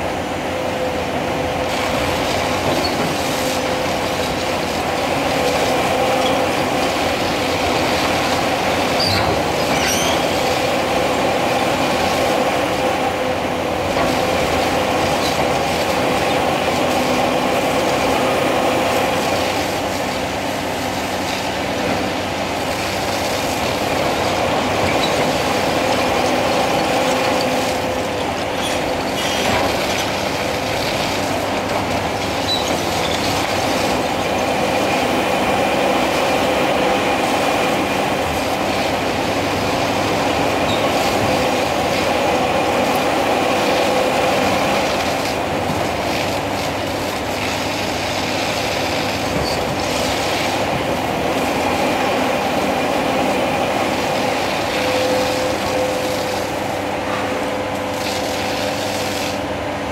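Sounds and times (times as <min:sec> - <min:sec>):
excavator engine and hydraulics whining: 0:00.0 - 0:59.9
sharp cracks and squeaks: 0:09.0 - 0:10.3.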